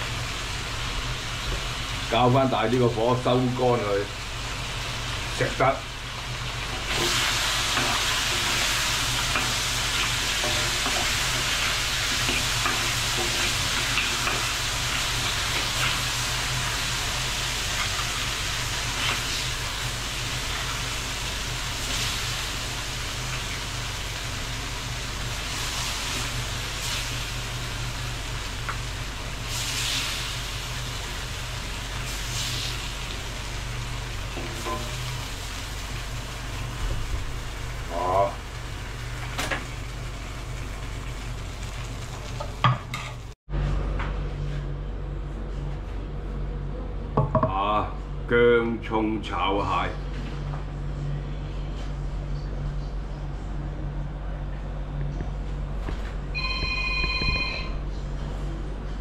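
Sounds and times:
crab sizzling in a pan: 0.0 - 43.4.

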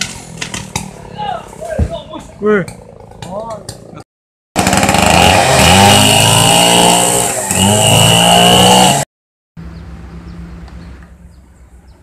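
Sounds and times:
chainsaw cutting branch: 0.0 - 1.0, 4.6 - 9.1.

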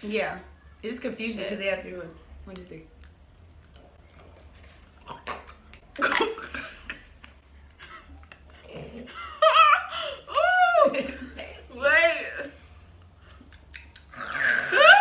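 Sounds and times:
women laughing: 7.8 - 11.6.

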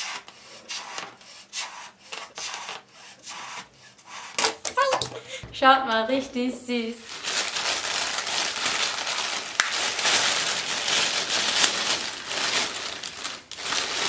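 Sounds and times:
plastic bag crinkling and tearing: 6.9 - 14.0.

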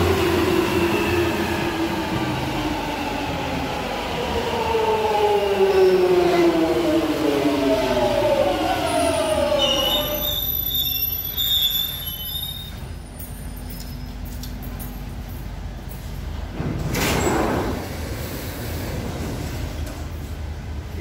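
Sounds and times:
low train rumble: 0.0 - 21.0
train wheels squealing: 8.8 - 14.3.

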